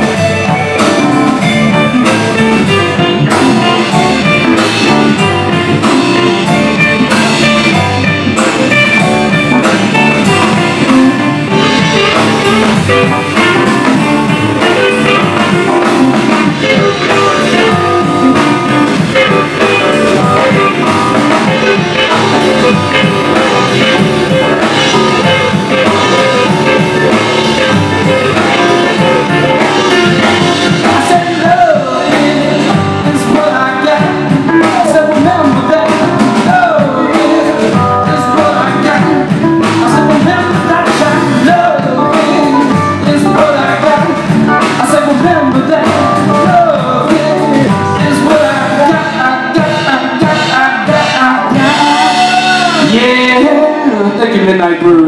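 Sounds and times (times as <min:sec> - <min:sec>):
person singing: 0:00.0 - 0:54.4
blues-rock band playing: 0:00.0 - 0:55.0.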